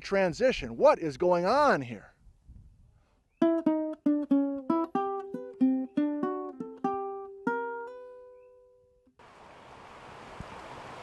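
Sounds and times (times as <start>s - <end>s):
plucked string instrument melody: 3.4s - 8.5s.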